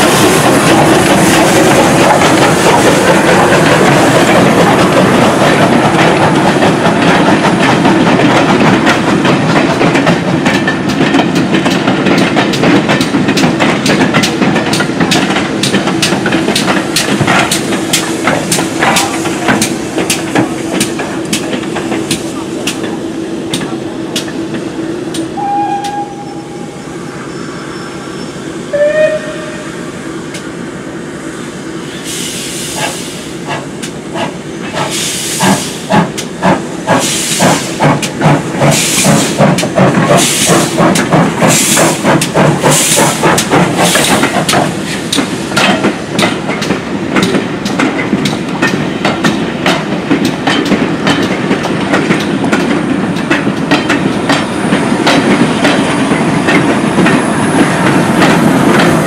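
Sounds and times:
steam whistle: 0:25.4 - 0:26.8, 0:28.7 - 0:29.7
steam hissing: 0:31.4 - 0:48.1.

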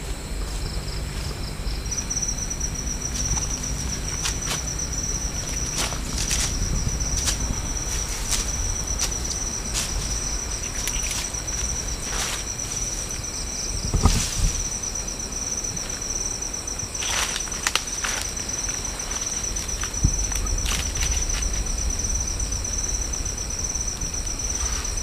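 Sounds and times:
night insects chirring: 0:00.0 - 0:25.0
footsteps in dry leaves: 0:03.1 - 0:13.2, 0:17.0 - 0:21.8.

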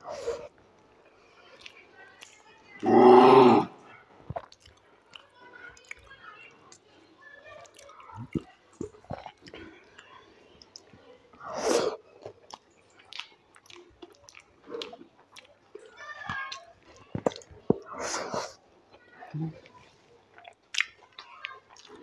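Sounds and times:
close chewing with mouth clicks: 0:01.3 - 0:03.1, 0:04.3 - 0:06.9, 0:07.6 - 0:22.0
fingers squishing through rice: 0:10.6 - 0:18.6.

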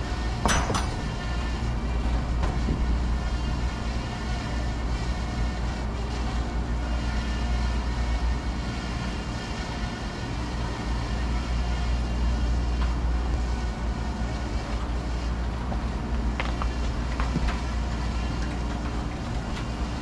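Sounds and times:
air conditioning units humming: 0:00.0 - 0:20.0.

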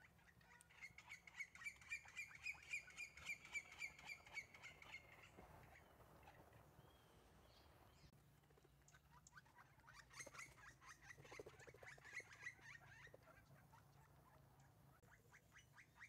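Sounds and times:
woodpecker call: 0:00.0 - 0:06.4, 0:08.9 - 0:14.4.

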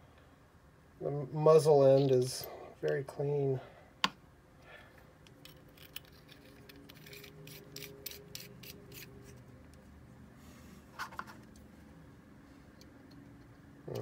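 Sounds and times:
small metal parts clicking: 0:05.2 - 0:09.3.

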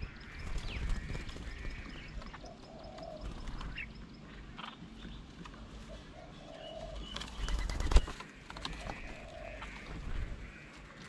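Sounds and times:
wings fluttering: 0:00.0 - 0:03.9, 0:06.8 - 0:11.0
doves cooing: 0:00.0 - 0:11.0
small birds chirping: 0:00.0 - 0:11.0.

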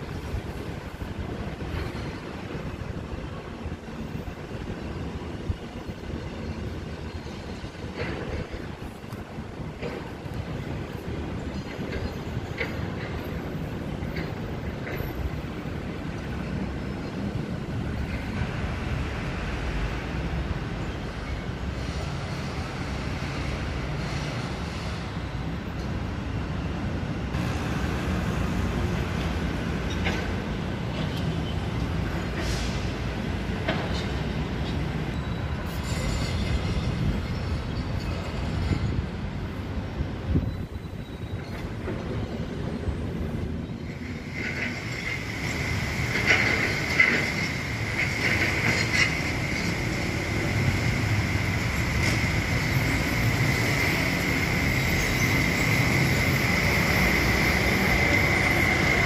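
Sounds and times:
metro train rumble: 0:00.0 - 0:59.0
high-pitched train whine: 0:43.6 - 0:59.0.

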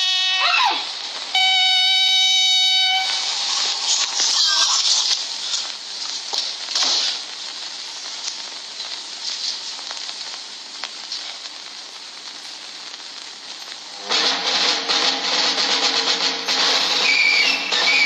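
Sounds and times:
film soundtrack hiss: 0:00.0 - 0:18.0
music: 0:13.9 - 0:18.0.

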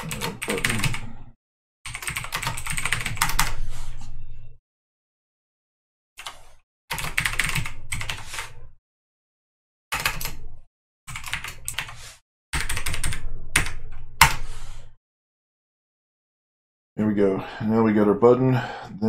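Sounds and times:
typing on a keyboard: 0:00.0 - 0:01.0, 0:01.9 - 0:03.5, 0:06.9 - 0:08.5, 0:12.6 - 0:14.4.

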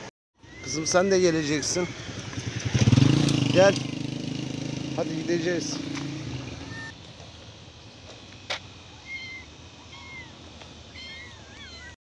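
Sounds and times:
kittens mewing: 0:09.0 - 0:12.0.

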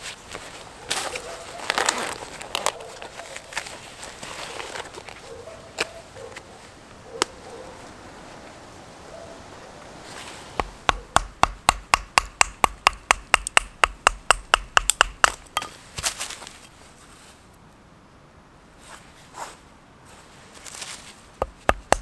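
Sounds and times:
knife chopping wooden stick: 0:10.6 - 0:15.8, 0:21.4 - 0:22.0.

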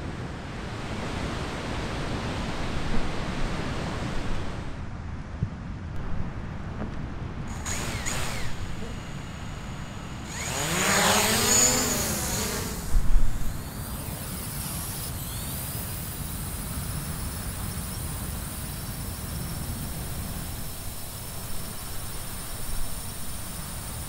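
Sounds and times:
faint high whine: 0:07.4 - 0:24.0
motor passing by: 0:07.5 - 0:24.0.

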